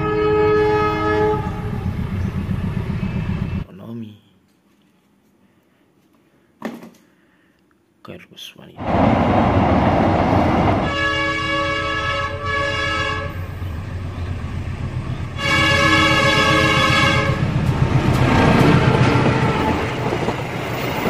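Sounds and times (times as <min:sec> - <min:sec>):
diesel locomotive horn: 0:00.0 - 0:03.6, 0:10.8 - 0:13.8, 0:15.1 - 0:20.1
train rumbling: 0:00.0 - 0:03.7, 0:08.8 - 0:21.0.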